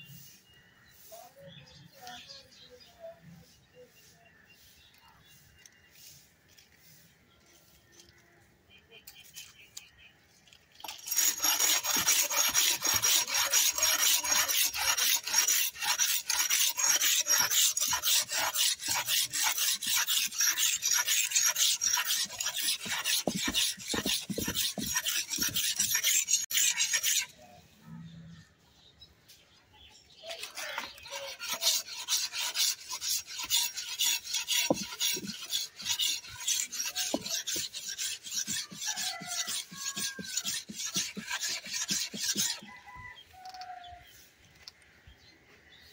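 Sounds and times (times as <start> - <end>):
blade sharpening scraping: 10.8 - 27.5, 30.2 - 42.7.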